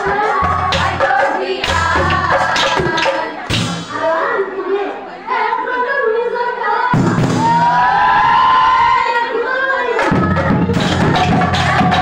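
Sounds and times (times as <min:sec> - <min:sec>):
rhythmic hand-clapping: 0:00.0 - 0:03.8
chorus singing: 0:00.0 - 0:12.0.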